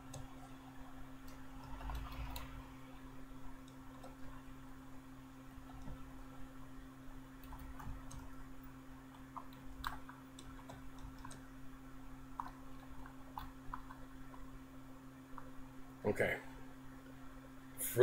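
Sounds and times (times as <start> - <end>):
keyboard typing: 0.0 - 0.6, 1.2 - 2.6, 3.6 - 4.4, 7.4 - 8.4, 9.1 - 11.5, 12.3 - 14.5
low electrical hum: 0.0 - 18.0.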